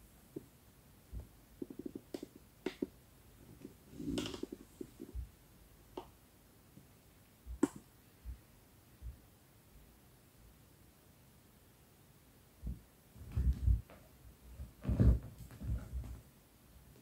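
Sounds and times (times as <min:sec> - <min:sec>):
cats scuffling on sofa: 0:14.6 - 0:16.2.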